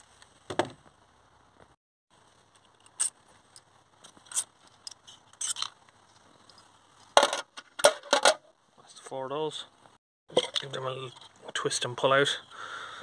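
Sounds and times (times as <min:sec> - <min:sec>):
metal bolts clicking and scraping: 0:02.6 - 0:05.8.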